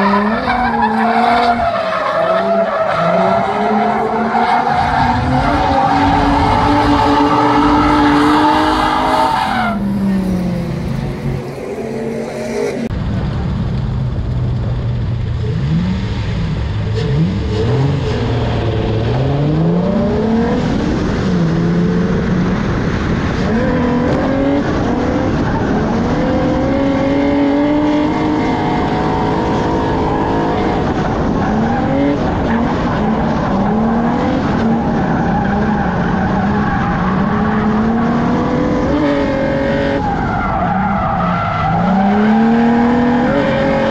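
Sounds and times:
tire squeal: 0.0s - 10.6s, 29.0s - 38.0s, 39.8s - 43.9s
car engine revving: 0.0s - 43.9s.

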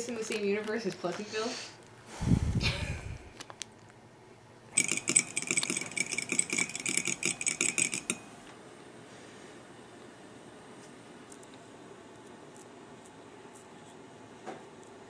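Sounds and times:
spoon beating egg in bowl: 4.8s - 8.4s.

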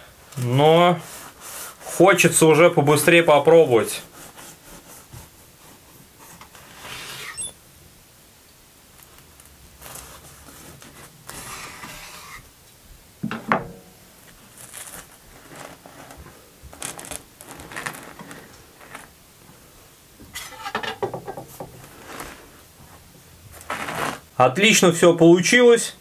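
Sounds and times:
rustling: 8.8s - 12.6s, 13.4s - 24.3s
knife and dish knocks: 13.2s - 13.9s
clatter of dishes: 20.3s - 21.8s.

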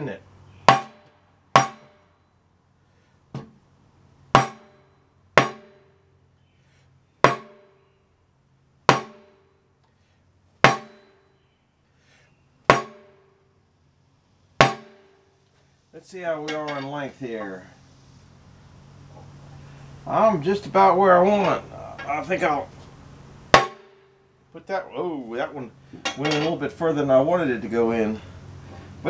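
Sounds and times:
metallic ring of rod: 16.4s - 17.1s, 26.0s - 26.6s.

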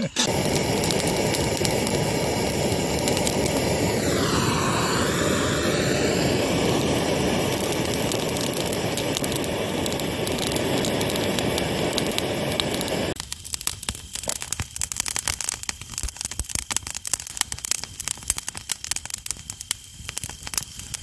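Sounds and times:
gas torch flame rushing: 0.1s - 13.2s.

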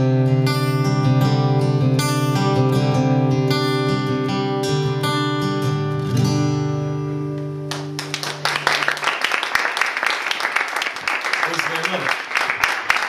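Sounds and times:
audience applause: 7.7s - 13.0s.

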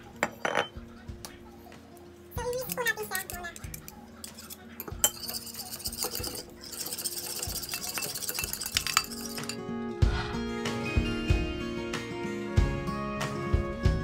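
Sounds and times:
utensil clinking against a bowl: 0.0s - 0.8s, 2.4s - 9.6s
background music: 0.0s - 14.0s
utensil scraping a bowl: 2.6s - 9.6s.

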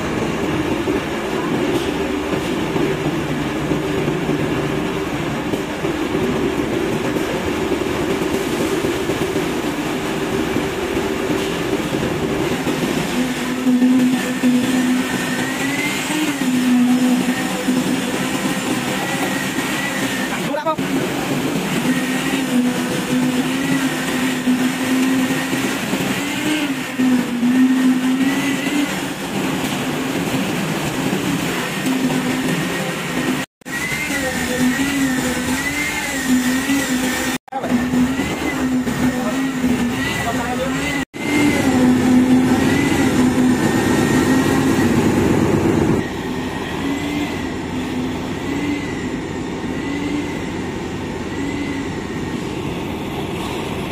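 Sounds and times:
engine running: 0.0s - 53.9s
machine motor droning: 31.9s - 52.2s.

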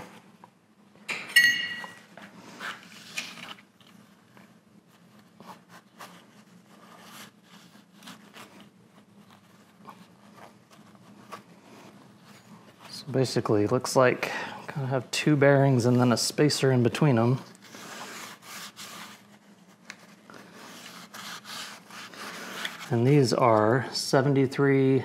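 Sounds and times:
metal ring clinking: 1.1s - 2.0s.

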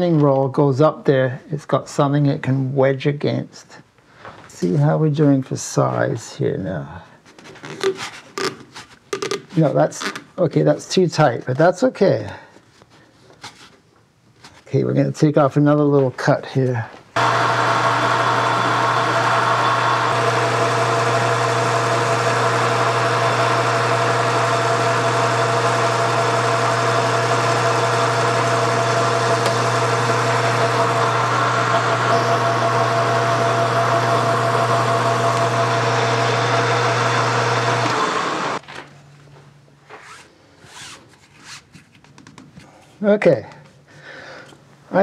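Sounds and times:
metal lathe running: 17.2s - 38.6s.

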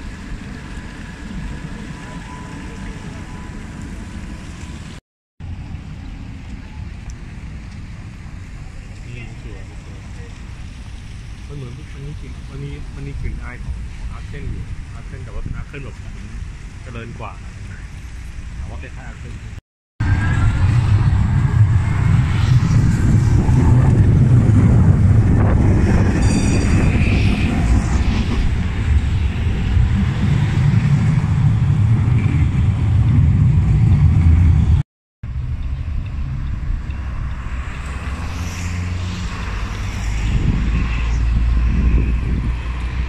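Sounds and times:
city street traffic: 0.0s - 43.0s
tram wheels rumbling: 20.0s - 43.0s.

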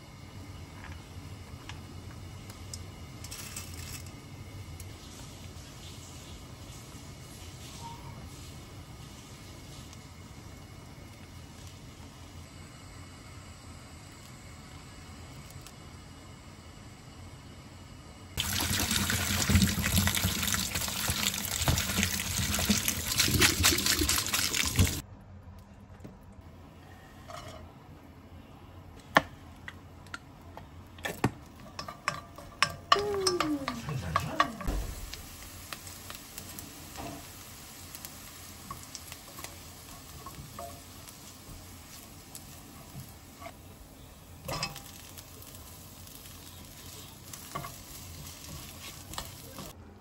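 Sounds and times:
knocks and clinks of kitchen work: 18.4s - 25.0s, 27.2s - 27.8s, 29.0s - 35.2s, 44.4s - 45.2s.

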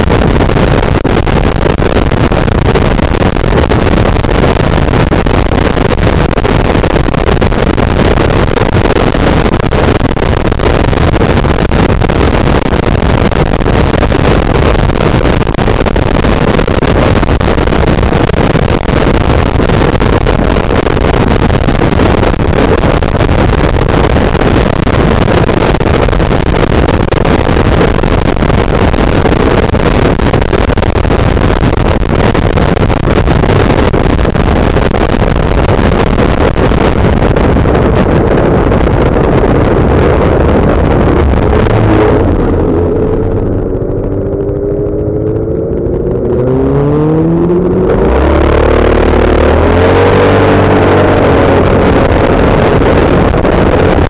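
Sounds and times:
wind and road noise: 0.0s - 54.0s
scooter engine drone: 34.9s - 54.0s.

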